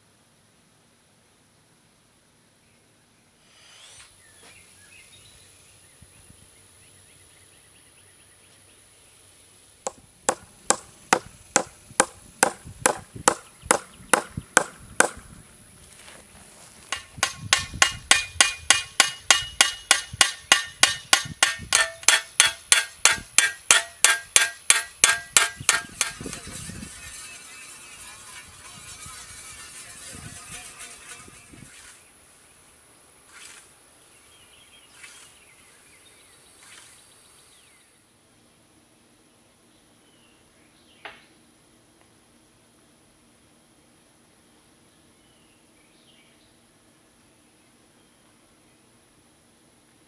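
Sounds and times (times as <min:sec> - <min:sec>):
hammer tapping scythe blade: 0:16.9 - 0:28.3.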